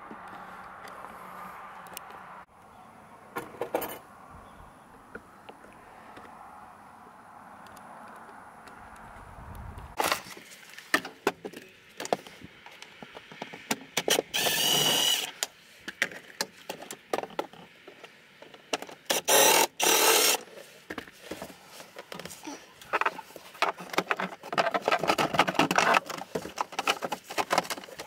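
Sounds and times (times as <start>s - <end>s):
cordless power tool running: 14.3s - 15.3s, 19.1s - 20.4s
clicks and knocks of parts handled: 20.4s - 28.0s.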